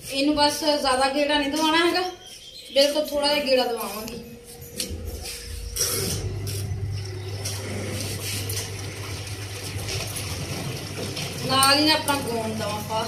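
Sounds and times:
washing machine motor hum: 0:03.0 - 0:13.0.

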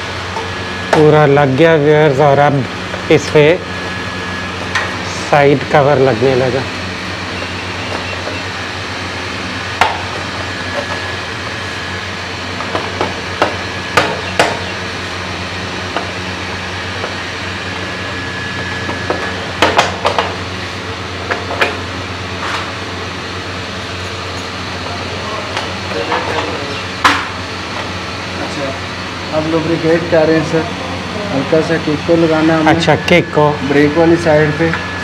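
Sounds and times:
background machinery hum: 0:00.0 - 0:35.0.

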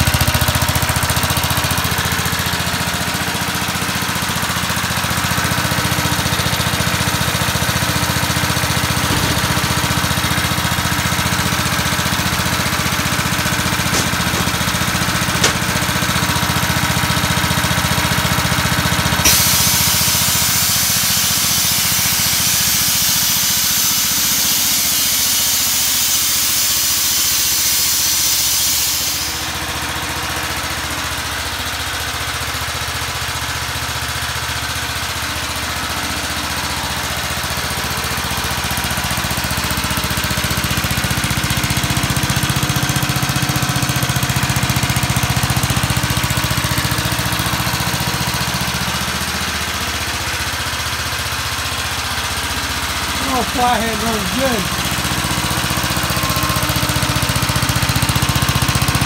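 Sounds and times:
lawnmower engine running: 0:00.0 - 0:25.8, 0:28.6 - 0:59.0.

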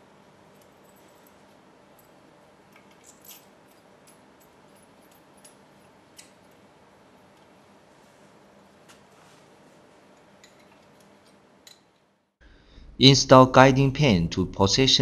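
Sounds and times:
metal bolts clinking: 0:02.0 - 0:06.6, 0:10.4 - 0:12.0.

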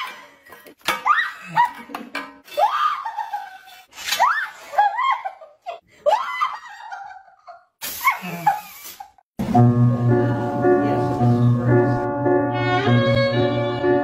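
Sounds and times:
person shrieking with laughter: 0:02.5 - 0:06.9.

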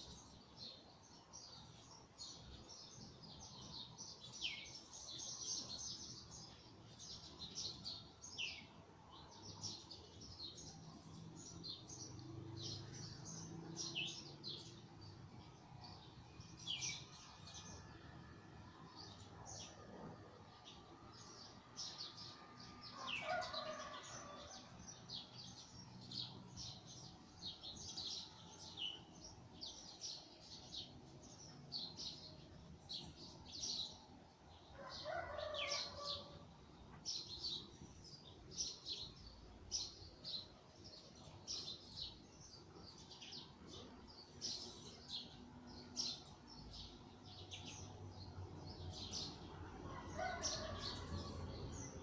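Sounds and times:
rooster crowing: 0:23.0 - 0:24.7, 0:34.8 - 0:36.3, 0:49.9 - 0:51.8.

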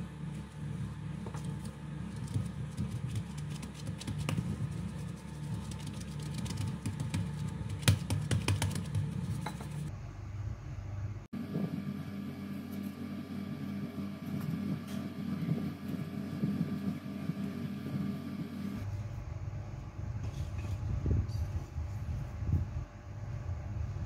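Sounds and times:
steady low hum: 0:00.0 - 0:24.0
hands tapping dough on worktop: 0:06.2 - 0:09.8.

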